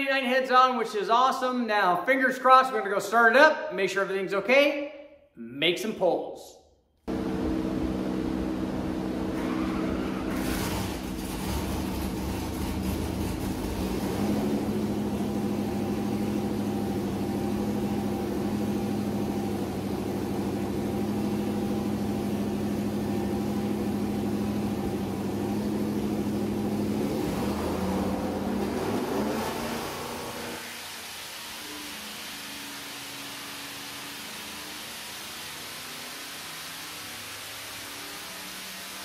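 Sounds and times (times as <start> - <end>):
supercharged engine running: 7.1 - 39.0.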